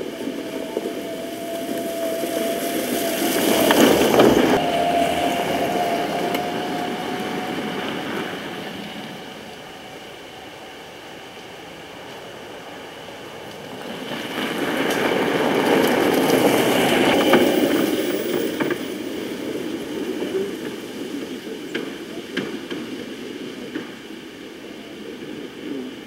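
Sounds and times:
cart body rattling: 0:00.0 - 0:09.9
electric cart driving over grass: 0:00.0 - 0:25.8.

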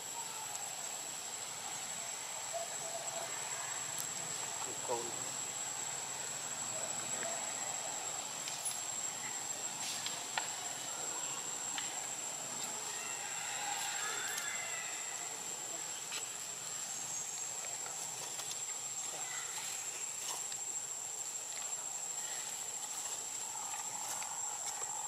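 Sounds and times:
background hiss: 0:00.0 - 0:25.0
high-pitched insect drone: 0:00.0 - 0:25.0.

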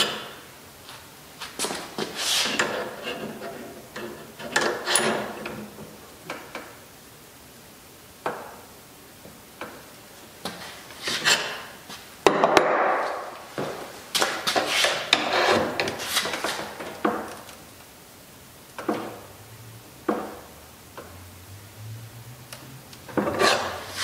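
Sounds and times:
scraping rustle: 0:00.9 - 0:05.3, 0:13.5 - 0:16.9.

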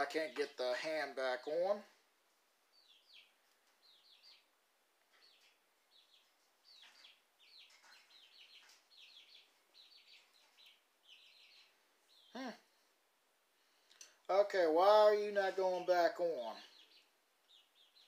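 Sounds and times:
small bird chirping: 0:02.7 - 0:12.9, 0:16.0 - 0:18.0.

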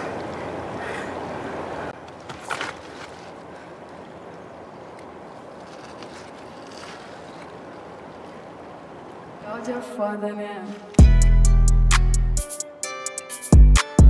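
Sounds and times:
flowing river water: 0:00.0 - 0:02.0, 0:03.1 - 0:09.8.

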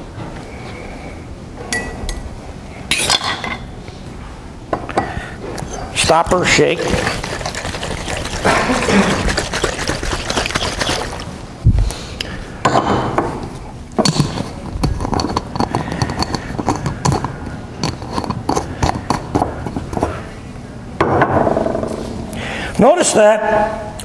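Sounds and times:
water sloshing in glass flasks: 0:06.3 - 0:11.4.

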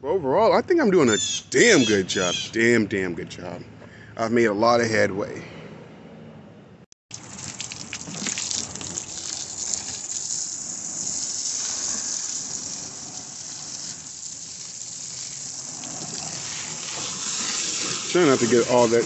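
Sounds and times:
hose water spraying and splashing: 0:07.1 - 0:19.0.

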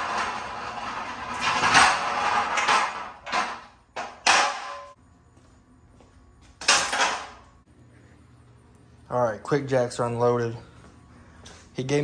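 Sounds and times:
metal frames clanking on concrete: 0:00.0 - 0:05.0, 0:06.6 - 0:07.5.

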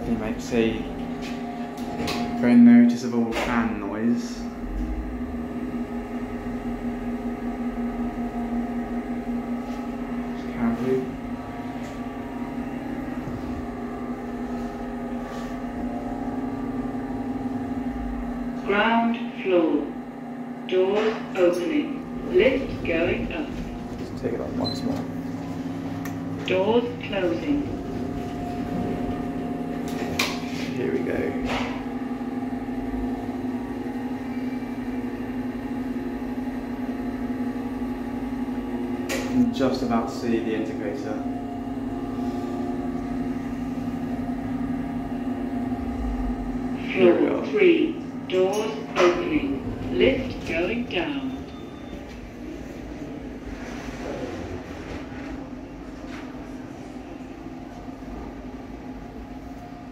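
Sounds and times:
lift ventilation fan hum: 0:00.0 - 0:59.9.

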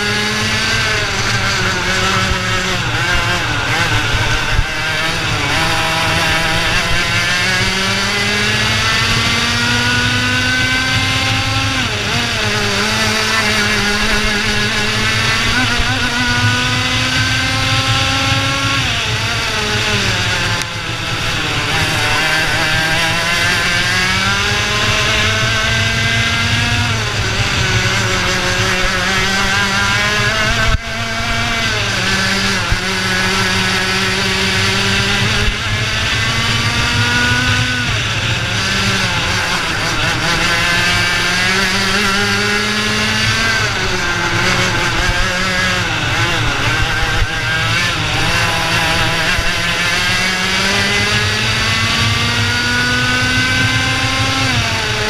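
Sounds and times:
two-stroke kart engine racing: 0:00.0 - 0:55.0.

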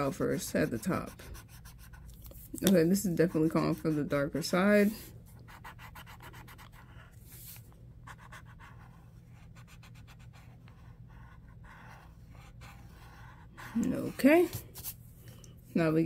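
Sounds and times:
blending stump rubbing on paper: 0:05.6 - 0:14.5.

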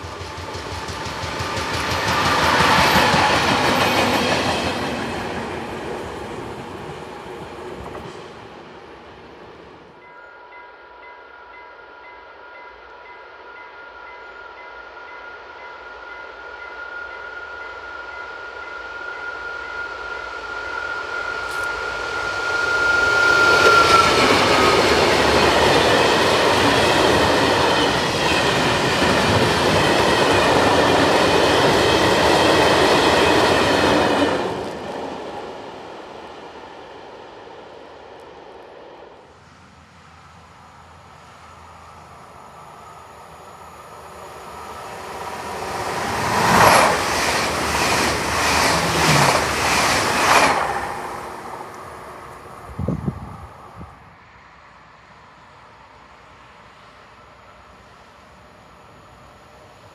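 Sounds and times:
train wagons rumbling and clattering: 0:00.0 - 0:09.6, 0:21.5 - 0:36.8, 0:44.5 - 0:53.4
locomotive high whine: 0:14.0 - 0:59.9.

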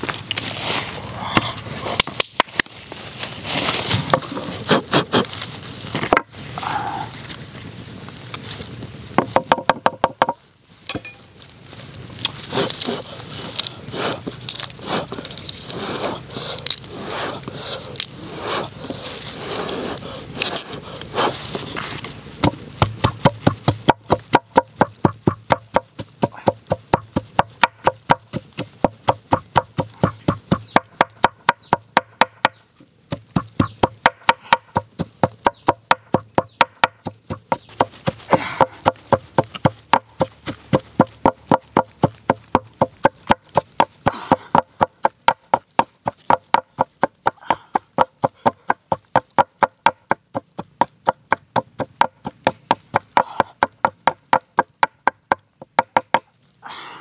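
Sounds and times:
stone pestle pounding in mortar: 0:09.2 - 0:11.2, 0:22.4 - 0:56.3.

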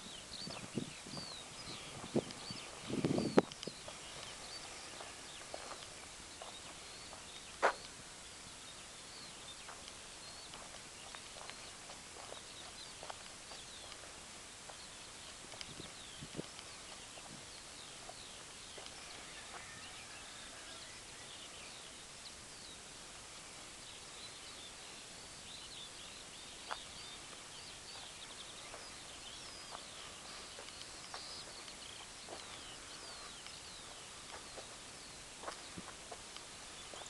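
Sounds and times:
birds chirping: 0:00.0 - 0:37.0
steady hiss: 0:00.0 - 0:37.0
scattered clicks: 0:30.6 - 0:32.5.

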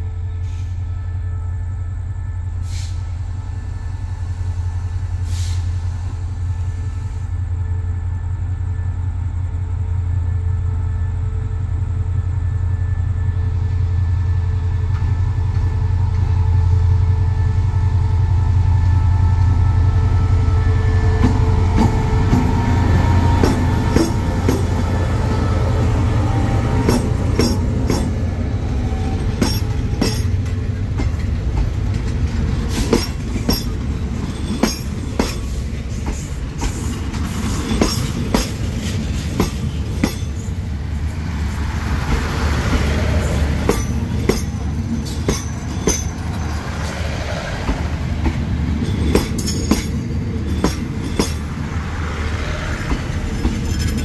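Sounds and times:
diesel locomotive engine drone: 0:00.0 - 0:54.0
wheels clacking over rail joints: 0:26.7 - 0:40.6, 0:42.0 - 0:51.6, 0:52.6 - 0:54.0.

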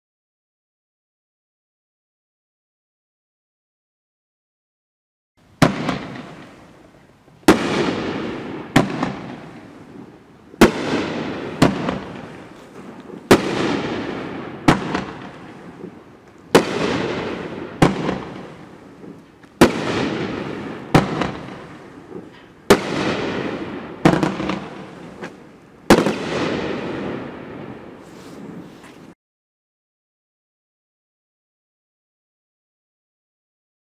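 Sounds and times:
firework crackle: 0:05.6 - 0:29.2
firework reports: 0:05.6 - 0:29.2.

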